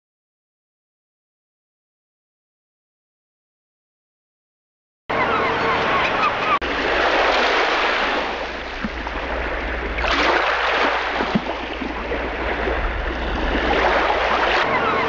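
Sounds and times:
sea surf washing on beach: 0:05.8 - 0:15.0.

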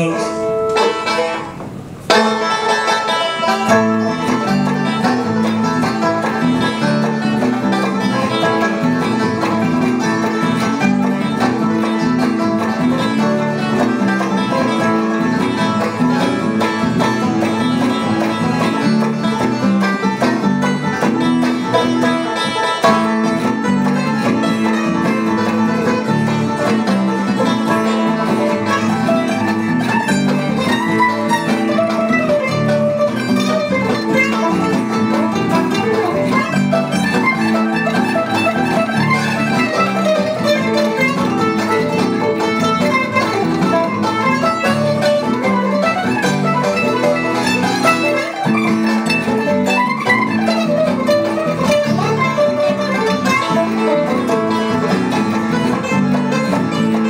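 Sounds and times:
banjo: 0:00.0 - 0:57.0
bluegrass band playing: 0:00.0 - 0:57.0.

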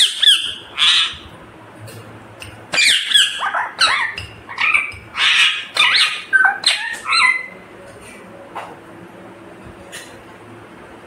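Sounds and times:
parrot squawking and chirping: 0:00.0 - 0:01.4, 0:02.7 - 0:07.6.

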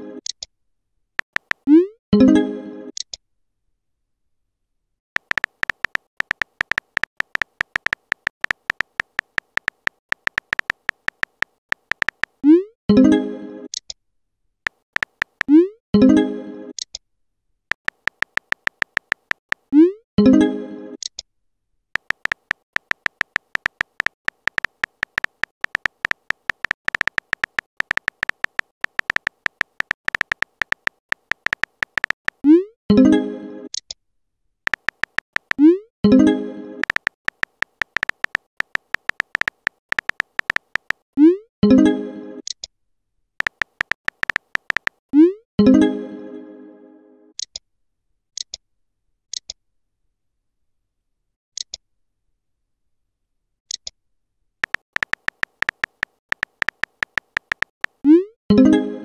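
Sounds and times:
keyboard typing clicks: 0:01.2 - 0:01.8, 0:05.2 - 0:12.4, 0:14.7 - 0:15.6, 0:17.7 - 0:19.7, 0:22.0 - 0:32.5, 0:34.7 - 0:35.7, 0:36.8 - 0:41.0, 0:43.4 - 0:45.0, 0:54.6 - 0:58.2.

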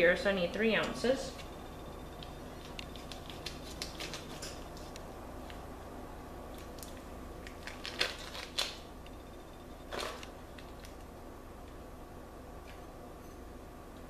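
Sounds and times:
foil crinkling and clicking: 0:02.6 - 0:04.9, 0:06.6 - 0:08.8
knife cutting foil wrapper: 0:03.0 - 0:04.6, 0:07.6 - 0:08.8.

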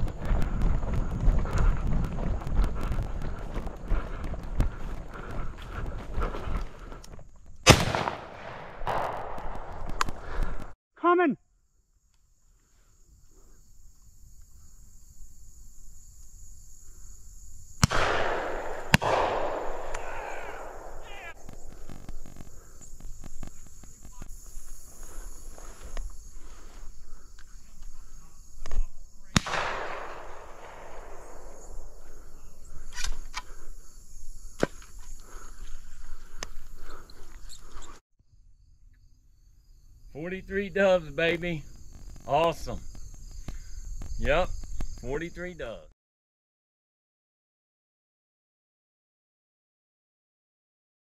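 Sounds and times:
shotgun shots echoing: 0:07.6 - 0:10.1, 0:17.8 - 0:21.4, 0:29.3 - 0:32.1
high insect chorus: 0:10.0 - 0:45.9.

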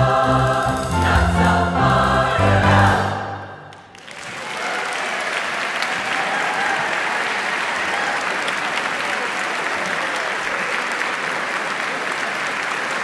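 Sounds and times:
audience applauding: 0:03.7 - 0:13.0.

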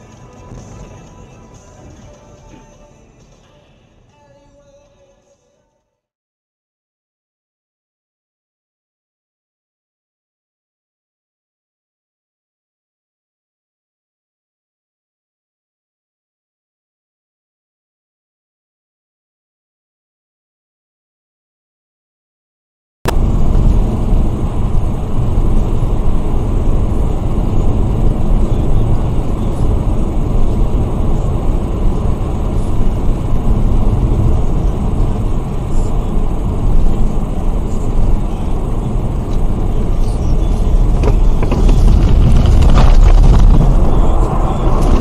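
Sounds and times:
car road and engine rumble: 0:00.0 - 0:05.3, 0:23.1 - 0:45.0
rattling and crackling: 0:40.4 - 0:45.0.

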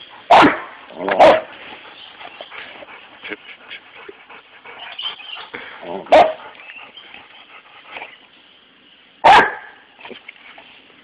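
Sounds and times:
dog barking: 0:00.3 - 0:01.5, 0:06.1 - 0:06.4, 0:09.2 - 0:09.8.

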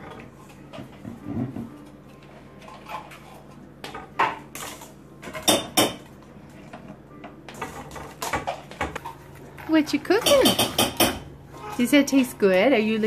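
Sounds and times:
metal bowl clanking: 0:07.5 - 0:12.1.

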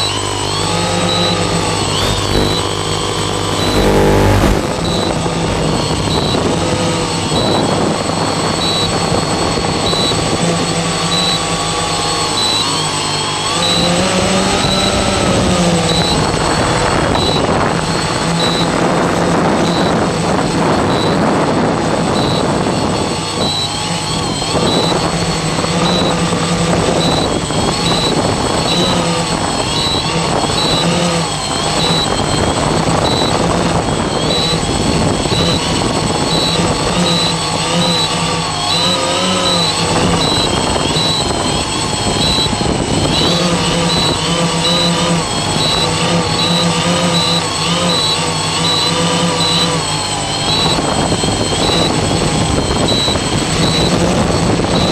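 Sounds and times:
drone propellers buzzing: 0:00.0 - 0:54.9
short high beeps: 0:00.9 - 0:05.2, 0:11.0 - 0:11.5, 0:17.1 - 0:17.6, 0:18.3 - 0:18.8, 0:34.0 - 0:54.1.

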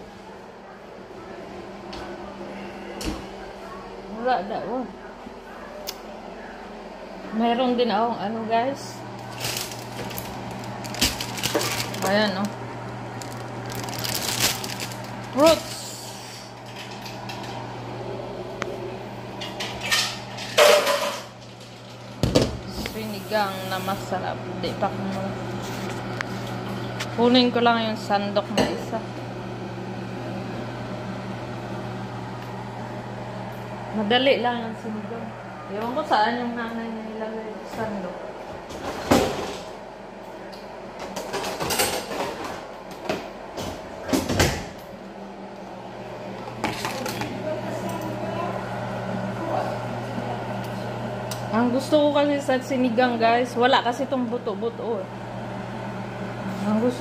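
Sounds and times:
kitchen items knocking and clattering: 0:09.3 - 0:12.5, 0:19.4 - 0:21.6, 0:46.6 - 0:47.3.

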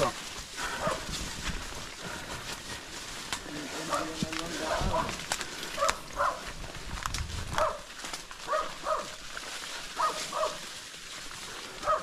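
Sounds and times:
dog barking: 0:00.8 - 0:01.1, 0:03.9 - 0:04.1, 0:04.7 - 0:05.2, 0:05.8 - 0:06.5, 0:07.6 - 0:09.2, 0:10.0 - 0:10.6.

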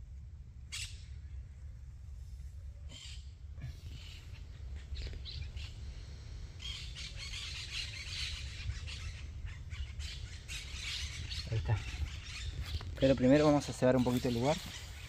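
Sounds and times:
birds chirping and calling: 0:02.9 - 0:15.0.

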